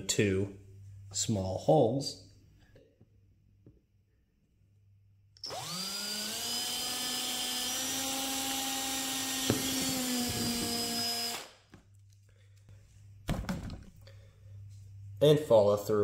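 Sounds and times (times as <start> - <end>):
drill click: 5.4 - 11.5
cordless drill drilling plastic: 5.4 - 11.6.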